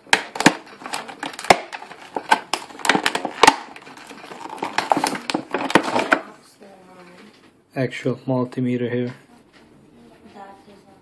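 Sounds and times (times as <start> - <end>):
plastic packaging crinkling: 0.0 - 6.4.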